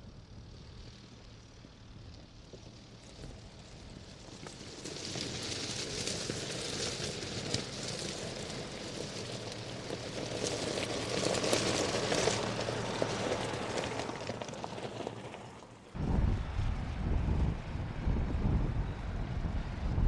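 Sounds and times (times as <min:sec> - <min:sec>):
tyres crunching over gravel: 0:01.4 - 0:16.0
low rumble: 0:16.0 - 0:20.0.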